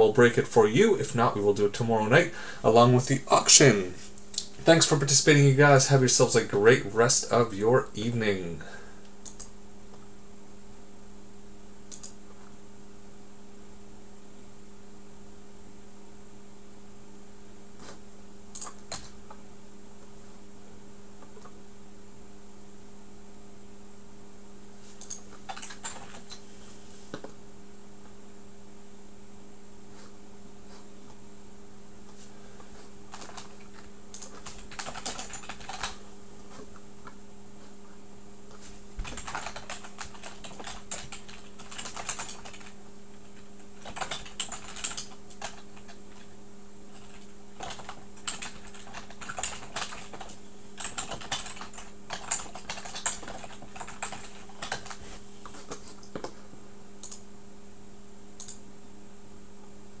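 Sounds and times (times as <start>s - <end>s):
steady electrical hum: 0.0s - 60.0s
typing on computer keyboard: 25.0s - 26.4s, 33.1s - 36.0s, 39.0s - 42.8s, 43.4s - 46.3s, 46.9s - 55.0s.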